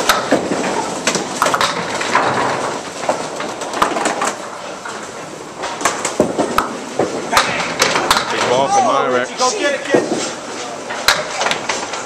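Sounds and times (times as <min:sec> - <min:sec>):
balls knocking pins: 0:00.0 - 0:04.9, 0:05.6 - 0:08.7
bowling balls rolling on wooden lanes: 0:00.0 - 0:12.0.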